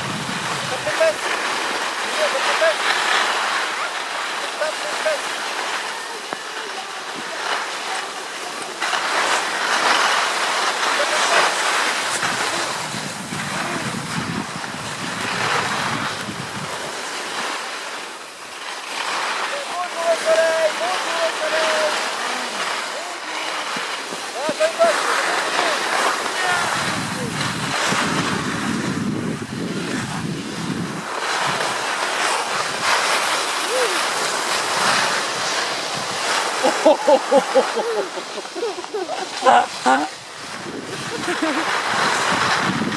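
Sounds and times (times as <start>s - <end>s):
wind buffeting microphone: 0.0s - 4.0s, 10.1s - 17.4s, 23.5s - 42.9s
skis scraping over snow: 0.0s - 42.9s.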